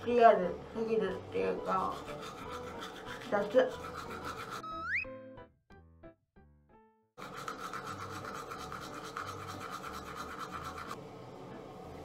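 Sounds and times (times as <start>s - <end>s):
toothbrush scrubbing teeth: 1.4s - 4.8s, 7.2s - 11.0s.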